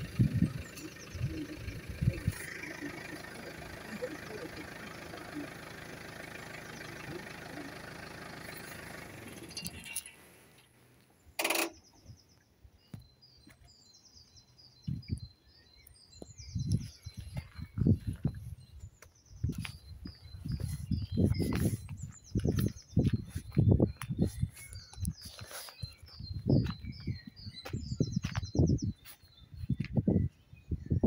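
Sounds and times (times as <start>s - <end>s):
vehicle engine idling: 0.0s - 11.8s, 19.4s - 28.4s
small birds chirping: 0.0s - 31.0s.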